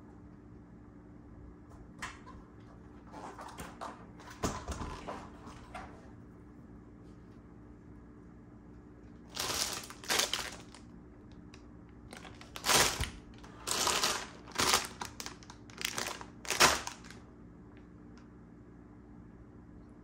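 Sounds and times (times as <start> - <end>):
plastic bags crinkling: 9.3 - 10.9, 12.0 - 17.2.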